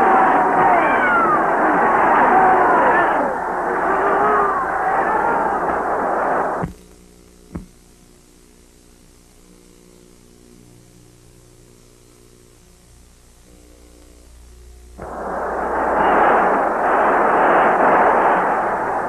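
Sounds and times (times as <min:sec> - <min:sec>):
loud roar: 0:00.0 - 0:06.5
film soundtrack hum: 0:00.0 - 0:07.8, 0:13.8 - 0:19.0.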